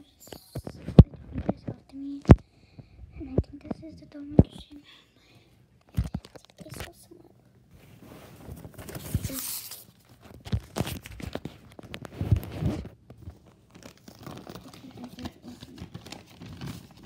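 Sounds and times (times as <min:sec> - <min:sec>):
handling noise rustling and scraping: 0:07.7 - 0:17.0.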